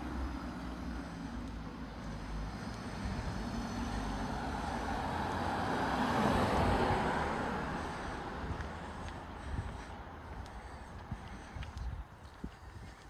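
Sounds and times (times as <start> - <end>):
car passing: 0.0 - 13.0.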